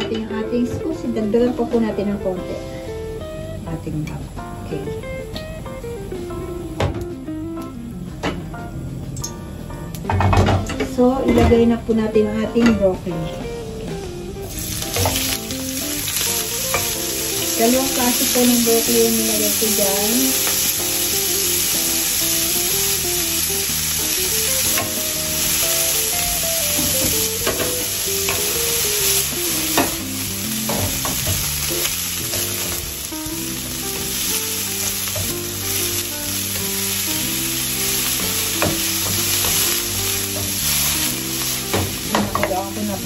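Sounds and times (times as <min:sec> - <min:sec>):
vegetables sizzling in oil: 0:00.0 - 0:09.3, 0:09.9 - 0:43.0
spatula knocking pan: 0:38.4 - 0:40.6, 0:41.4 - 0:42.9.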